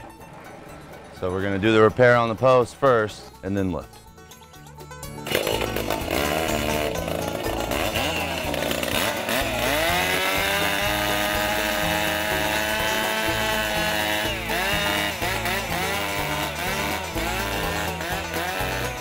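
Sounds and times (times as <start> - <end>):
chainsaw cutting wood: 5.0 - 19.0.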